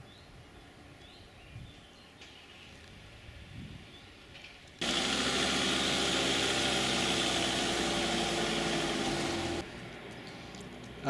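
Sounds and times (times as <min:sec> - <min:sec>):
vehicle engine idling: 0:04.8 - 0:09.7.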